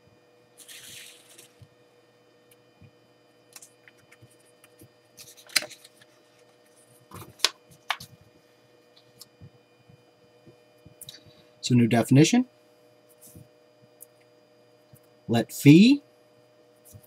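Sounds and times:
faint steady hum: 0:00.0 - 0:17.0
paper rustling: 0:00.6 - 0:01.6, 0:05.2 - 0:06.4.

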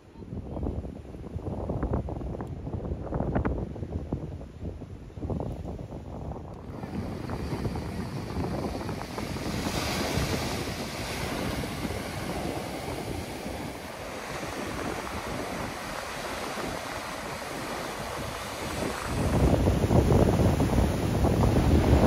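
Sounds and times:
surf breaking on rocks: 0:06.7 - 0:22.0.

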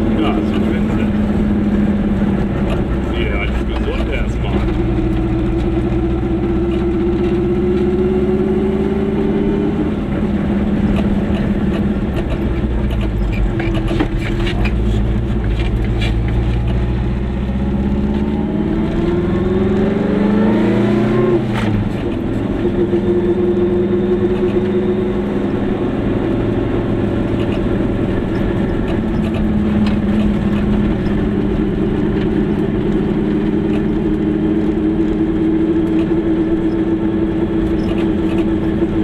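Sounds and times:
small two-stroke car engine: 0:00.0 - 0:39.0.

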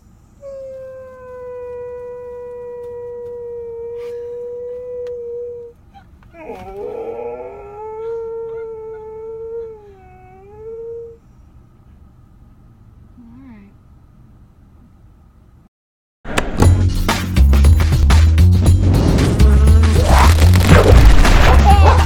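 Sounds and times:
dog howling: 0:06.3 - 0:11.2.

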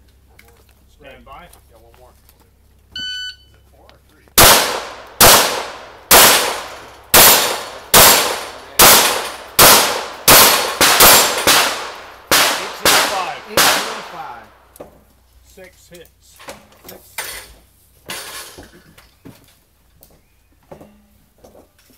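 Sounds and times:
pistol shots: 0:04.4 - 0:14.6.

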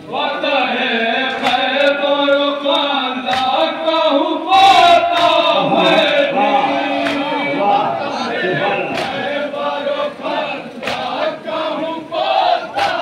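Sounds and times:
men chanting together: 0:00.0 - 0:13.0
hands slapping chests: 0:03.3 - 0:03.6, 0:08.9 - 0:09.2, 0:10.8 - 0:11.1.

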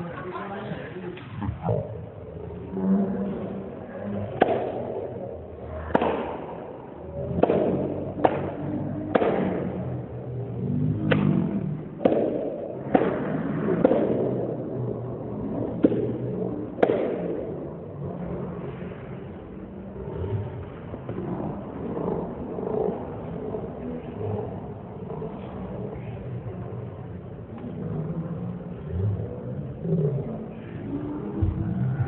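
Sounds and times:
sharp knocks or claps: 0:04.4 - 0:04.8, 0:05.9 - 0:06.4, 0:07.4 - 0:09.7, 0:11.1 - 0:11.4, 0:12.0 - 0:14.4, 0:16.8 - 0:17.3.

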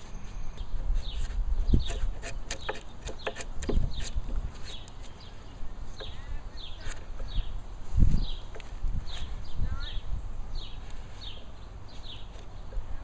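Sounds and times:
chisel slicing and scraping wood: 0:00.0 - 0:05.3.

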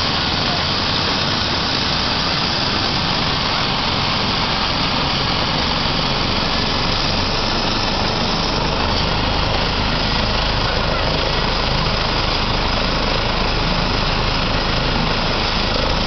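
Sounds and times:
helicopter starting up: 0:00.0 - 0:16.0.

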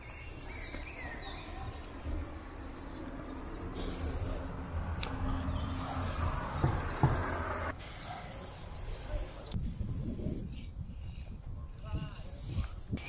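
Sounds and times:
spray paint can hissing: 0:00.1 - 0:01.6, 0:03.7 - 0:05.1, 0:05.8 - 0:11.4, 0:12.0 - 0:13.0.

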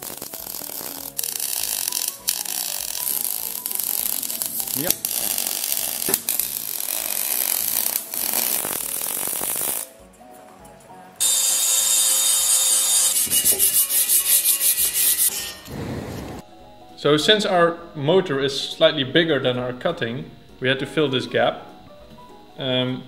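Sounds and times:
angle grinder grinding steel: 0:00.0 - 0:10.0, 0:11.2 - 0:16.4
arc welding crackling: 0:00.0 - 0:16.4
hand sanding on metal: 0:12.6 - 0:15.4.

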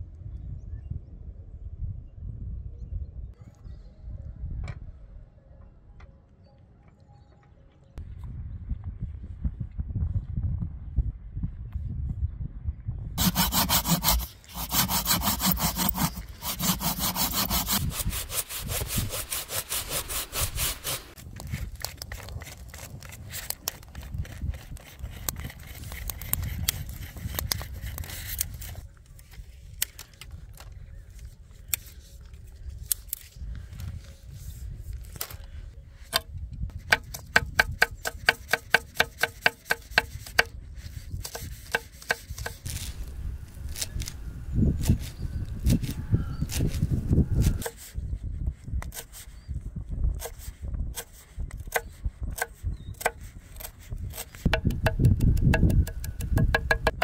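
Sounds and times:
hand saw cutting a log: 0:13.2 - 0:21.2, 0:36.9 - 0:40.5, 0:41.2 - 0:43.0, 0:44.8 - 0:48.0, 0:51.0 - 0:57.0
sharp regular ticks: 0:54.4 - 0:57.0
wooden clicks and knocks: 0:54.5 - 0:57.0.

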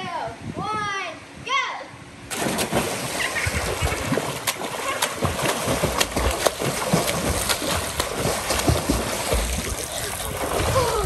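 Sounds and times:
swimmer splashing water: 0:02.3 - 0:11.0.

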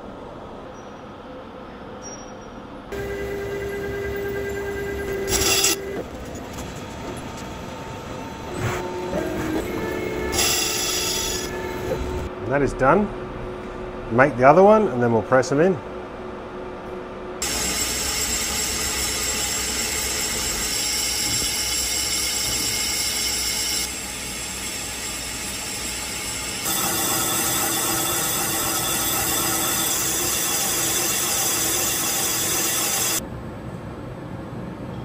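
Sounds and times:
lathe cutting metal: 0:03.0 - 0:12.3, 0:17.4 - 0:33.2.

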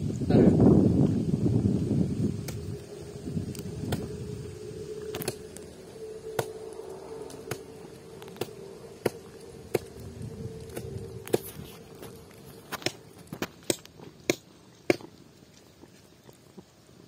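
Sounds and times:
steady low hum: 0:00.0 - 0:14.5.

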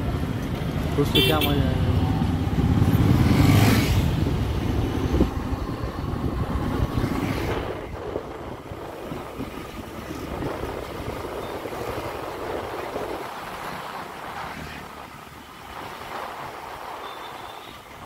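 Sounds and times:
steady traffic noise: 0:00.0 - 0:18.0
vehicle engines rumbling: 0:00.0 - 0:18.0
wind on microphone: 0:02.5 - 0:14.5.

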